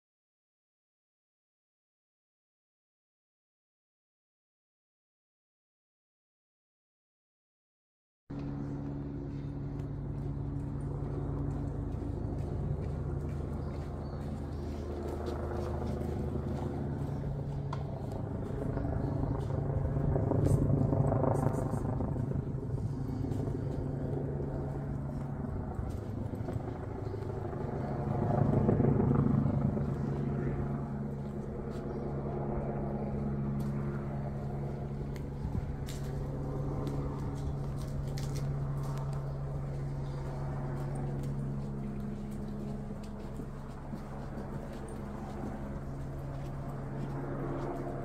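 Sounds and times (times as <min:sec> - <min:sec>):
low engine-like hum: 0:08.3 - 0:48.0
vehicles passing: 0:08.4 - 0:32.2.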